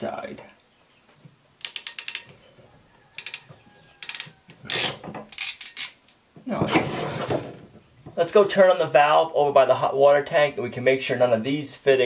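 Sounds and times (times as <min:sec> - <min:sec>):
ratcheting crimp tool clicking: 0:01.6 - 0:02.3, 0:03.2 - 0:03.4, 0:04.0 - 0:06.0.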